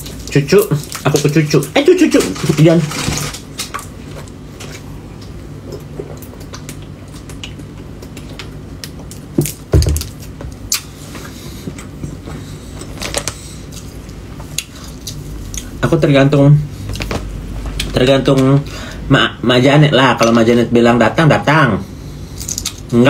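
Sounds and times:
person chewing: 0:03.6 - 0:15.8, 0:22.2 - 0:22.9.

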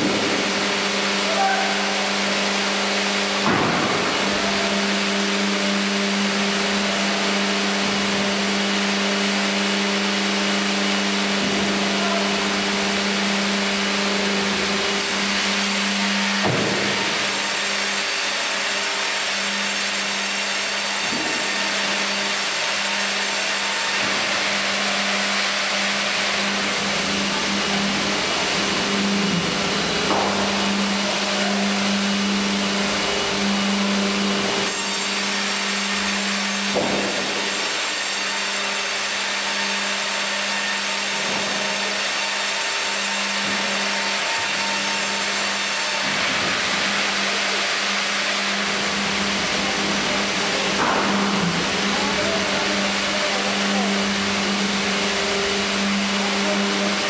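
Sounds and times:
band saw humming: 0:00.0 - 0:57.0
saw ripping through log: 0:12.5 - 0:26.7, 0:34.4 - 0:49.3.

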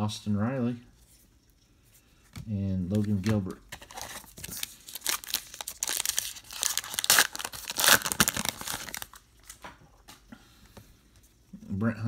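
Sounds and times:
foil wrapper tearing and crinkling: 0:03.0 - 0:09.6.

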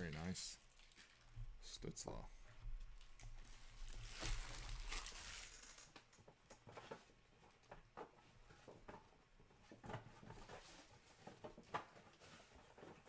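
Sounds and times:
trading cards rustling: 0:03.5 - 0:06.0.

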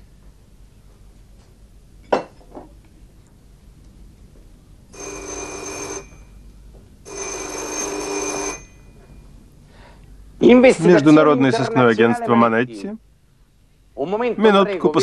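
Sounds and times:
telephone bell ringing: 0:04.9 - 0:06.4, 0:07.0 - 0:09.4.

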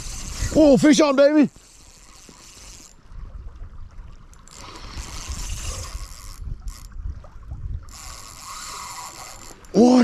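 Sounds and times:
wind rumble on microphone: 0:00.0 - 0:01.0, 0:02.6 - 0:09.8
creek water flowing: 0:00.0 - 0:10.0.

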